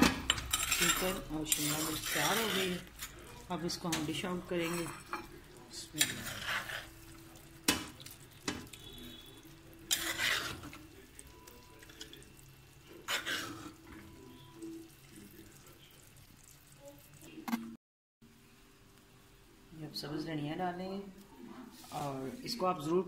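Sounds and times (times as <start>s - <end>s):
spoon scraping clay pot: 0.2s - 7.2s, 7.8s - 11.0s, 13.0s - 14.0s.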